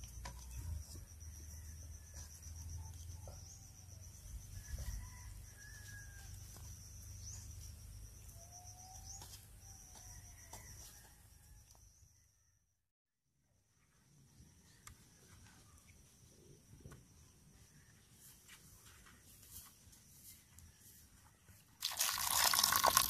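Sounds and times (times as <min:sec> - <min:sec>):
insect trilling: 0:21.8 - 0:23.0.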